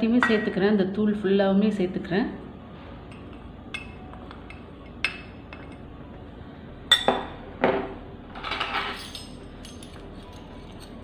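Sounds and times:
spoon clinking against glass: 3.1s - 5.8s.

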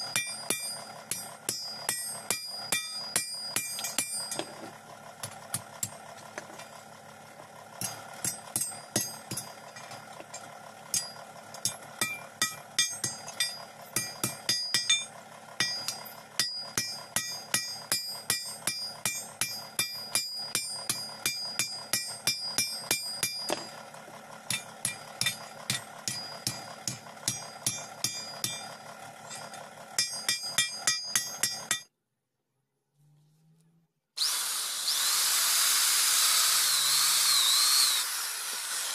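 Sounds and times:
hammer striking metal on anvil: 0.0s - 4.6s, 7.8s - 23.8s, 24.5s - 28.7s, 29.3s - 31.9s.

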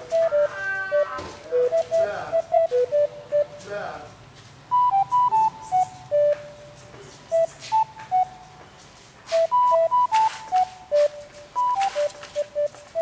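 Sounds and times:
whistle-like melody: 0.0s - 3.6s, 4.7s - 6.6s, 7.3s - 8.5s, 9.3s - 13.0s.

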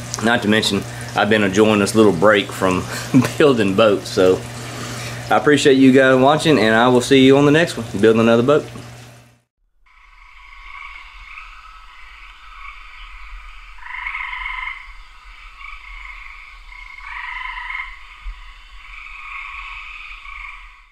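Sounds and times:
frogs trilling in chorus: 9.9s - 20.9s.

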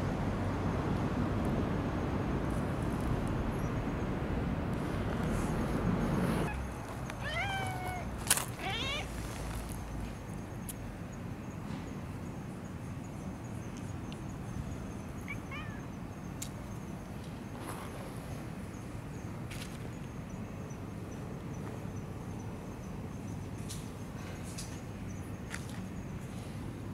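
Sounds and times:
rustle: 4.7s - 10.8s, 15.2s - 18.7s
cat chirp: 6.5s - 9.1s, 15.2s - 15.9s
cat trilling call: 6.5s - 9.2s, 15.2s - 16.0s
cat meowing: 7.2s - 9.2s, 15.2s - 15.9s.

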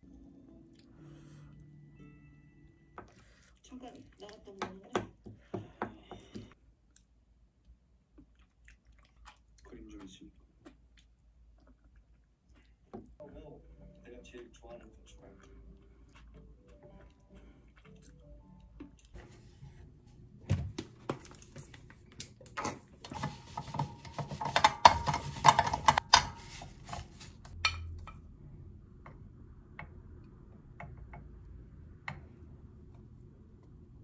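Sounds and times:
paper towel rubbing: 23.1s - 27.6s.

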